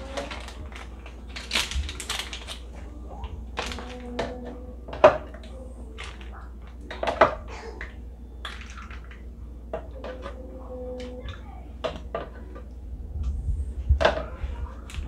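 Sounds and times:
juice splashing: 8.4s - 9.3s.

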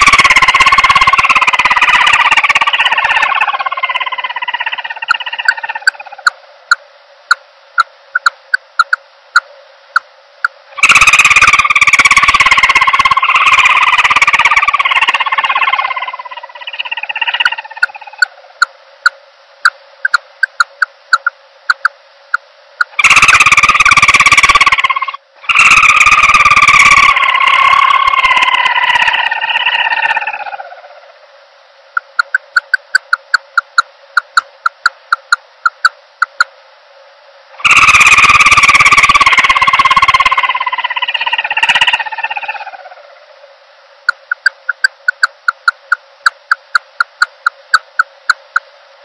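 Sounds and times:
dove calls: 0.0s - 6.4s, 10.8s - 18.5s, 22.9s - 31.1s, 37.6s - 43.3s.

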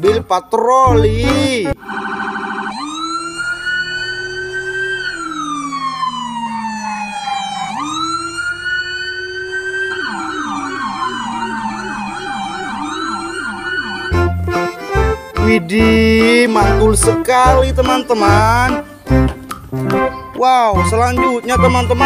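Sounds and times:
police siren fast yelp: 1.7s - 14.9s, 20.8s - 22.0s
police siren wailing: 1.7s - 22.0s.

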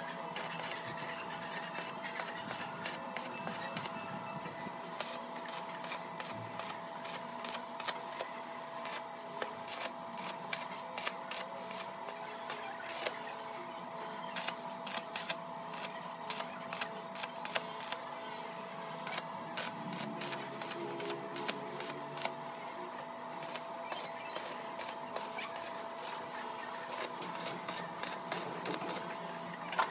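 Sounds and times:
welding arc crackling: 5.0s - 13.3s, 14.3s - 18.0s, 19.0s - 22.6s, 23.4s - 29.9s.

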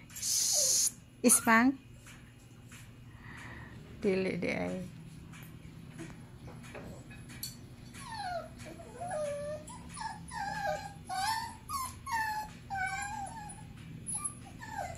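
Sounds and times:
puppies whining: 0.2s - 1.6s, 7.7s - 14.9s.

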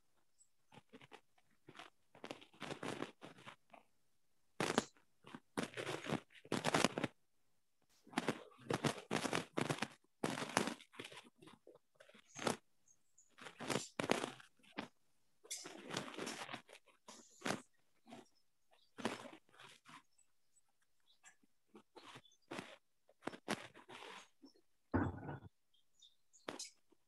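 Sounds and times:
crunching and rustling: 8.0s - 12.6s, 13.2s - 20.2s, 21.1s - 24.6s.

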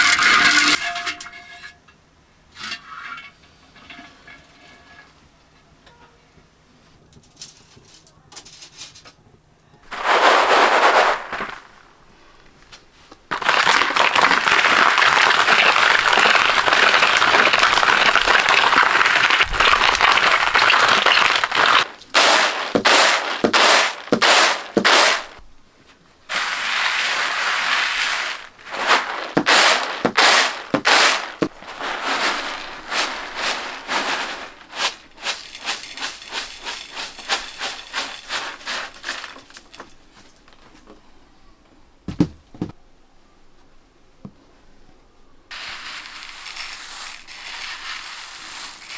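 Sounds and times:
beans rattling on bamboo tray: 9.9s - 11.8s, 13.3s - 25.4s, 26.3s - 40.0s, 45.5s - 48.9s
grains pattering into bowl: 9.9s - 11.8s, 13.3s - 25.4s, 26.3s - 39.9s, 45.5s - 48.9s.

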